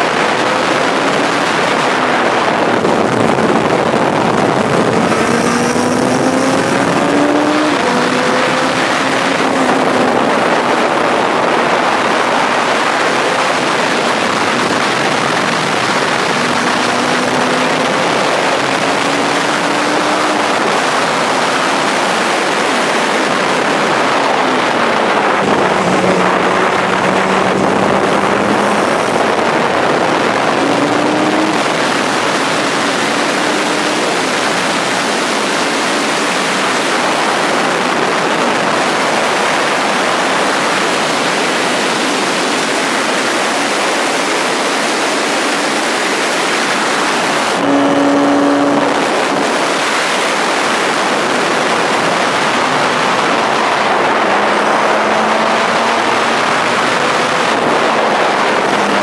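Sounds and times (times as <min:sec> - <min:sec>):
faint race car engine: 0:00.0 - 0:59.0
wind rush over microphone: 0:00.0 - 0:59.0.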